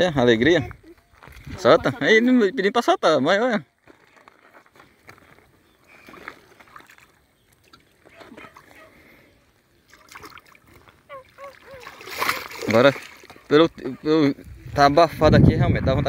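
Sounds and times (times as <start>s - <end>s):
splashing in shallow water: 5.8s - 9.1s, 9.8s - 13.7s.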